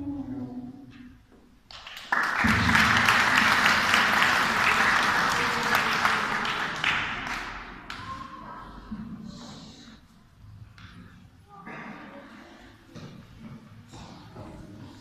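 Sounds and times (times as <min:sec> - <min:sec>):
audience applauding: 0:01.7 - 0:08.2.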